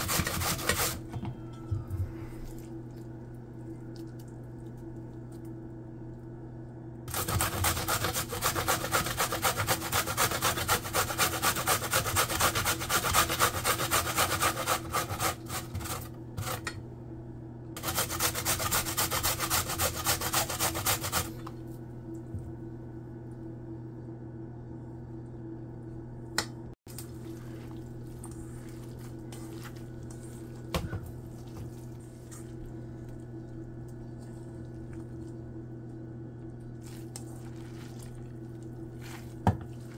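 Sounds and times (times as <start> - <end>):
carrot rasping on a box grater: 0.0 - 1.0, 7.1 - 16.6, 17.8 - 21.4
steady low hum: 0.0 - 39.9.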